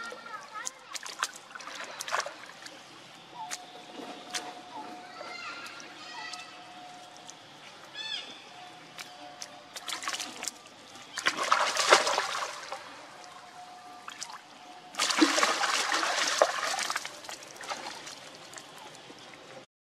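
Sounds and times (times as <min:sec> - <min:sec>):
monkeys splashing in water: 0:00.6 - 0:03.7, 0:09.8 - 0:12.9, 0:15.0 - 0:19.0.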